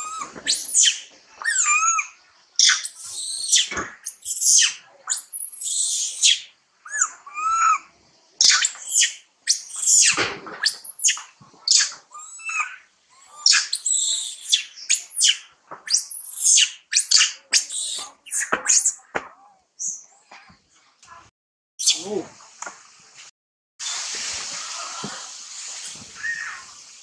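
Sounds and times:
monkey screeching: 0:00.0 - 0:19.0, 0:26.2 - 0:26.7.

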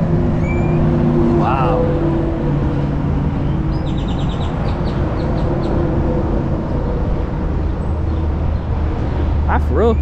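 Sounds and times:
highway traffic rumble: 0:00.0 - 0:10.0
bird chirping: 0:00.4 - 0:00.9, 0:03.3 - 0:05.9.

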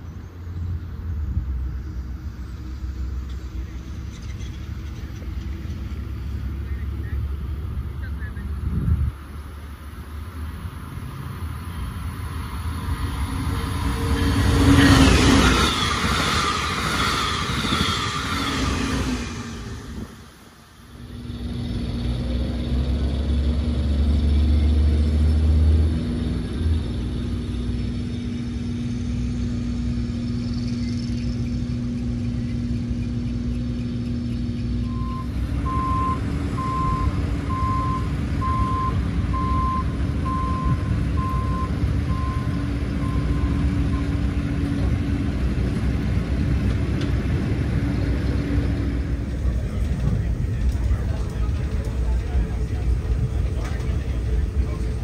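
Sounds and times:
motor vehicle rumble: 0:00.0 - 0:55.0
reversing alarm beeping: 0:34.8 - 0:44.3.

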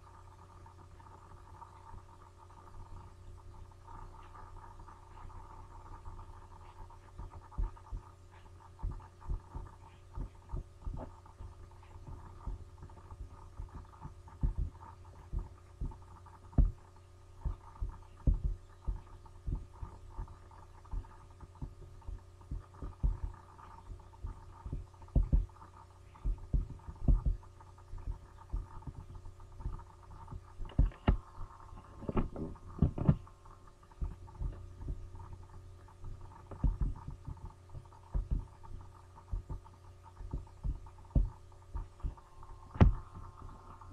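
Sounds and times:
electrical hum: 0:00.0 - 0:43.9
low clicks and thumps: 0:04.0 - 0:43.9.

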